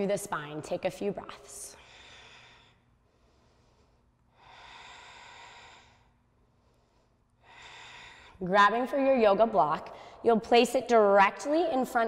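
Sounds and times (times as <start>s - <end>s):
woman breathing slowly: 1.7s - 8.4s, 9.9s - 10.2s.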